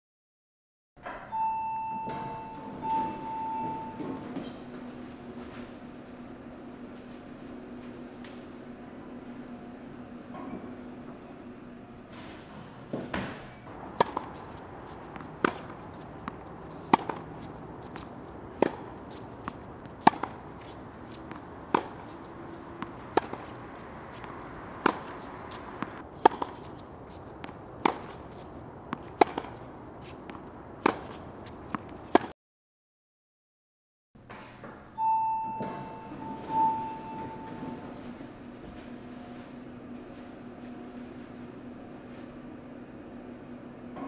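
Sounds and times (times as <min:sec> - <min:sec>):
tennis ball bouncing: 0:13.7 - 0:32.3
tennis racket hitting ball: 0:13.7 - 0:32.3.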